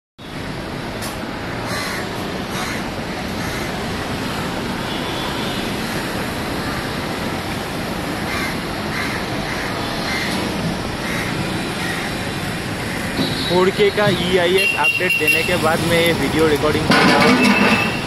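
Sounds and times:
street traffic: 0:00.2 - 0:18.0
crows cawing: 0:01.6 - 0:03.8, 0:08.3 - 0:10.4, 0:11.0 - 0:13.1.

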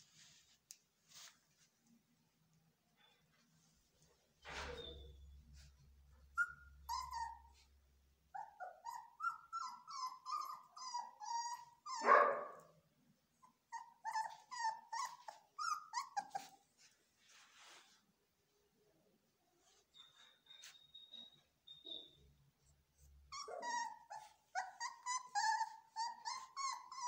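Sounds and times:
puppies whining and yelping: 0:05.6 - 0:07.8, 0:08.4 - 0:12.1, 0:13.4 - 0:16.8, 0:23.0 - 0:27.0.

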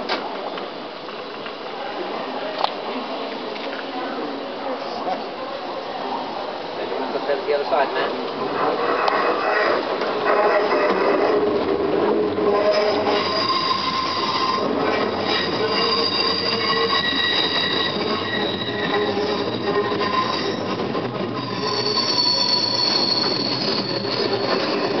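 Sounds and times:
steam locomotive running slowly: 0:04.2 - 0:25.0
metallic wheel squeal: 0:12.5 - 0:25.0.

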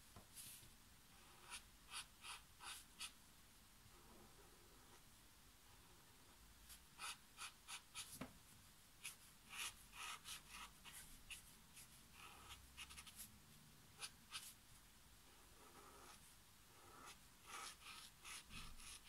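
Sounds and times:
brush pen stroking on paper: 0:15.6 - 0:19.0.

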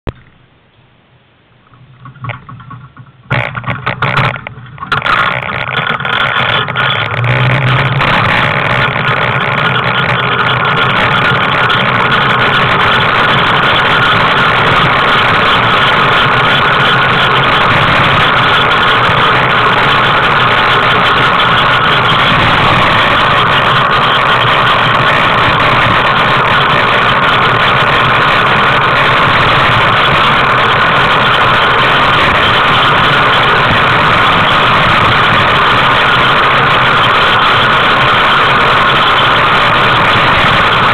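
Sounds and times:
tricycle rolling on asphalt: 0:01.6 - 0:40.9
tricycle knocks: 0:01.8 - 0:06.8.

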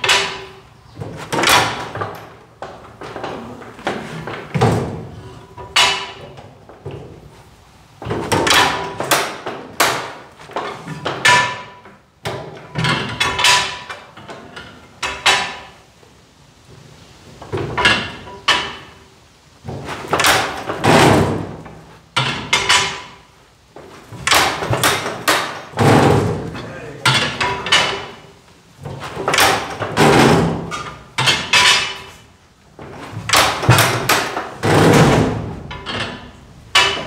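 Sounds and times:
tractor engine clanking and popping: 0:05.5 - 0:06.3, 0:08.0 - 0:15.7, 0:19.7 - 0:23.2, 0:24.1 - 0:32.2, 0:32.8 - 0:37.0.

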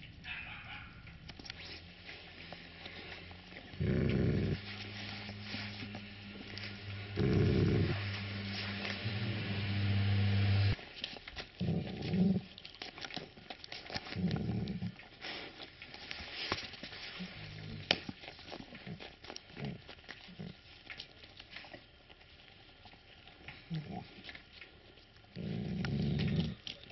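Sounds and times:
dog growling low: 0:02.8 - 0:10.8, 0:11.6 - 0:12.5, 0:14.2 - 0:15.0, 0:23.6 - 0:24.2, 0:25.3 - 0:26.7.

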